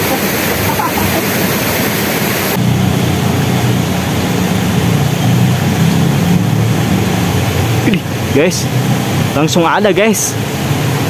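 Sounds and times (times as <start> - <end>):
stream water rushing: 0.0 - 11.0.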